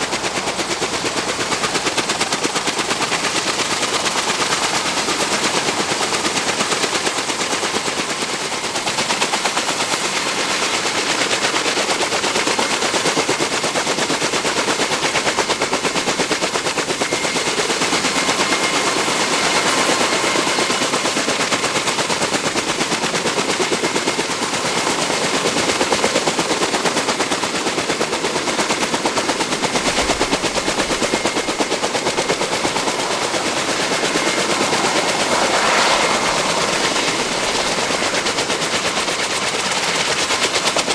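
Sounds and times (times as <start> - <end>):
helicopter rotor chop: 0.0 - 40.9
thin steady whine: 29.3 - 39.1.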